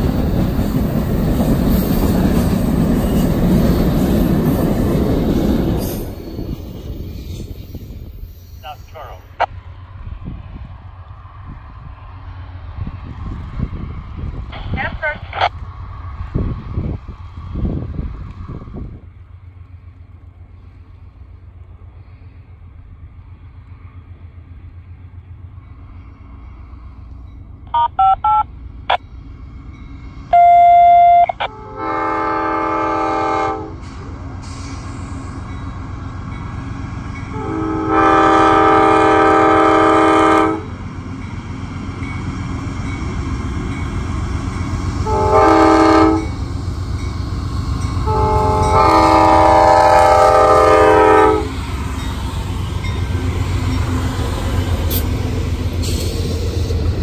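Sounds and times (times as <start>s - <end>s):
locomotive air horn: 30.3s - 33.9s, 37.3s - 40.7s, 45.0s - 46.4s, 48.0s - 51.6s
loud electronic tone: 30.4s - 31.4s
short electronic beeps: 30.4s - 31.4s.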